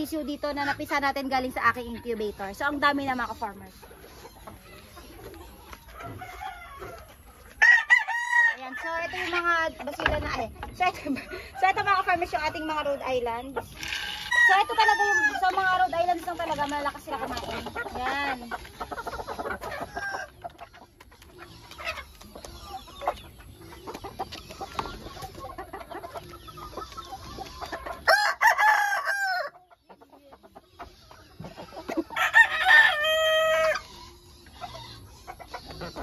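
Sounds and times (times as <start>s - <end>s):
chickens clucking: 0.0s - 36.0s
rooster crowing: 7.6s - 8.7s, 28.1s - 29.5s, 32.2s - 33.8s.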